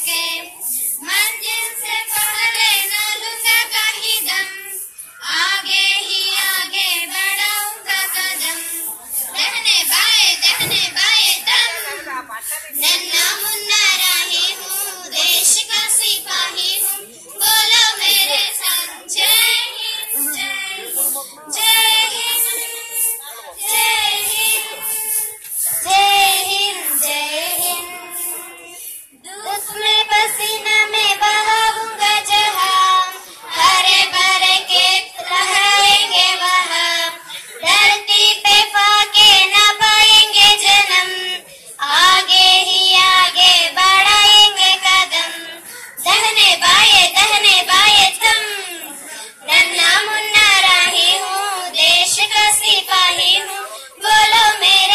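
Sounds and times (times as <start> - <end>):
girls singing unaccompanied: 0.0 - 54.9
breaths between phrases: 37.2 - 37.6, 41.4 - 41.8, 45.6 - 46.0, 49.0 - 49.4, 53.7 - 54.0.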